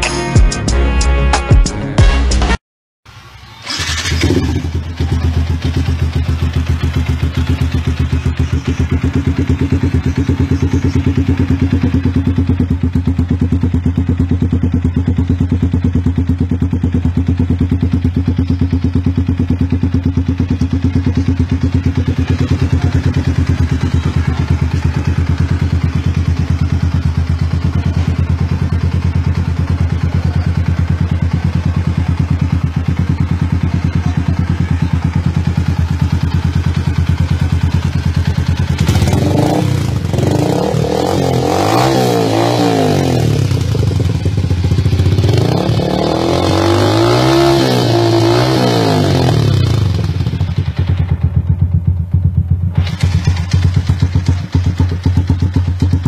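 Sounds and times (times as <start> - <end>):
motorcycle engine idling: 3.1 - 56.0
engine revving: 3.6 - 15.3, 19.0 - 51.0.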